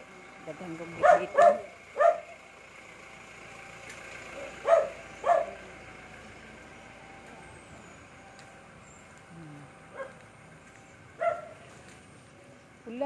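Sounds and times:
dog barking: 1.0 - 2.4, 4.4 - 5.6, 9.9 - 10.2, 11.2 - 11.6.

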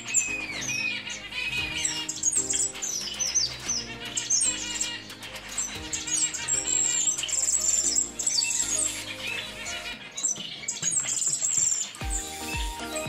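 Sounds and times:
background music sustained chords: 0.0 - 13.0
finches chirping: 0.0 - 13.0.

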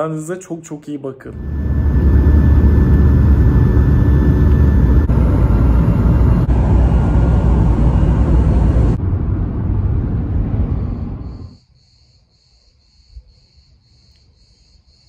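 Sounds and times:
jet engines and rushing air: 1.4 - 11.6
road noise inside a car: 1.4 - 11.6.

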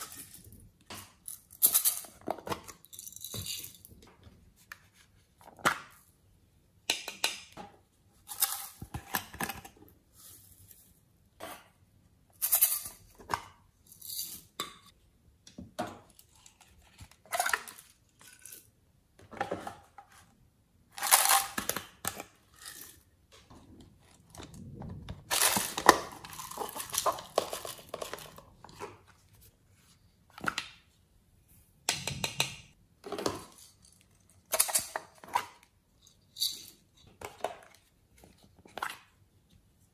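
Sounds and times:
plastic pots clicking and rattling: 23.4 - 29.2.

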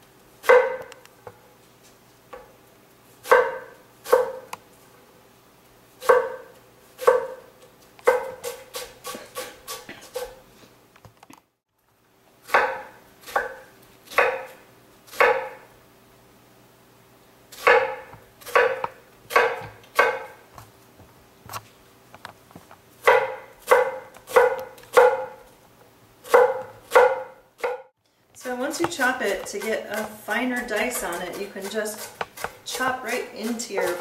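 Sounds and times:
knife chopping onion on board: 0.4 - 1.0, 3.2 - 4.5, 6.0 - 10.4, 12.4 - 15.7, 17.6 - 20.4, 23.0 - 25.4, 26.2 - 34.0
faint steady hum: 11.8 - 34.0.

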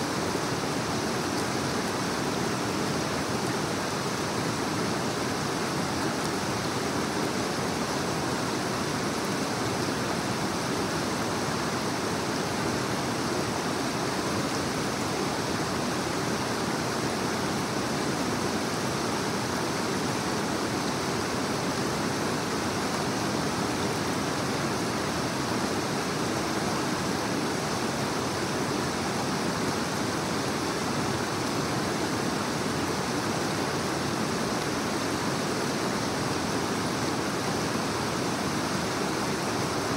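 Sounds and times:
creek rushing over rocks: 0.0 - 39.9.

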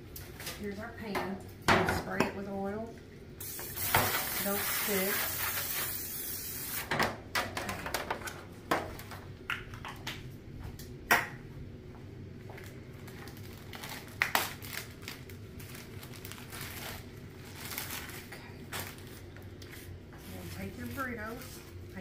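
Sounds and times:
plastic bag crinkling: 12.6 - 22.0.

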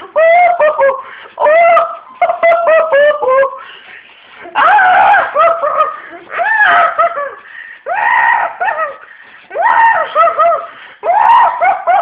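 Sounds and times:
high voice shrieking and laughing: 0.0 - 3.6, 4.4 - 12.0.

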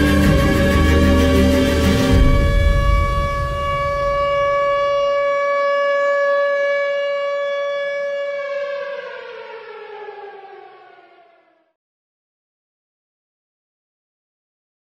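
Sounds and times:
air-raid siren: 0.0 - 11.8.

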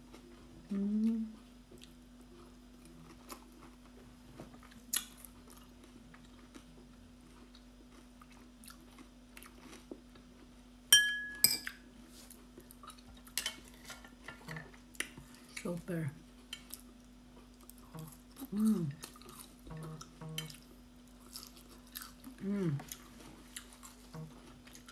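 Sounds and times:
person chewing: 0.0 - 10.5, 11.7 - 13.9, 16.4 - 24.9
faint low hum: 0.0 - 24.9
metal spoon clinking on dish: 10.9 - 11.8.

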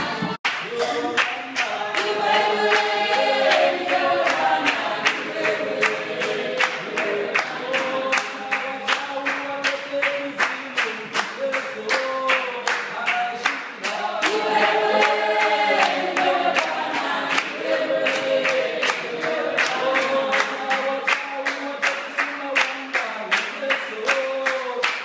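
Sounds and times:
choir singing in harmony: 0.0 - 9.0, 13.8 - 21.3
percussive beat: 0.0 - 25.0.

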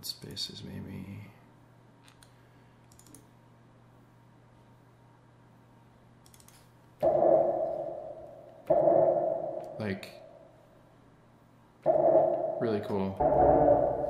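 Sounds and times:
computer mouse clicks: 2.0 - 3.3, 6.2 - 6.7
synthesizer lead note with reverb: 7.0 - 10.4, 11.9 - 14.0.

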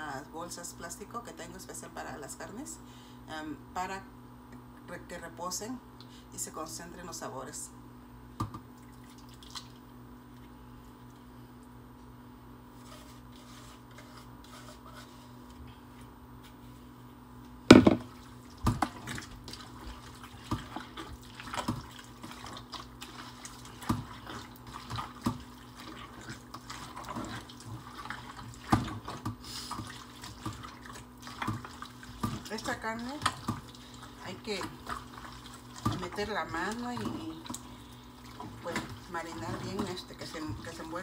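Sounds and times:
faint steady hum: 0.0 - 41.0
knock on metal pot: 17.7 - 18.1.

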